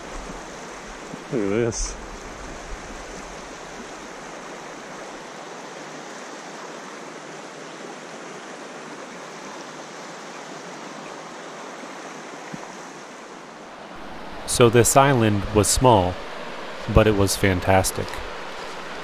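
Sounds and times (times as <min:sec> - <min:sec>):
river water rushing: 0:00.0 - 0:19.0.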